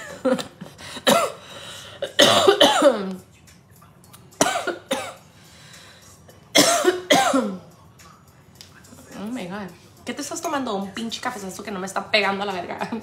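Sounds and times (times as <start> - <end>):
person coughing: 0.0 - 3.2, 4.4 - 5.2, 6.3 - 7.7.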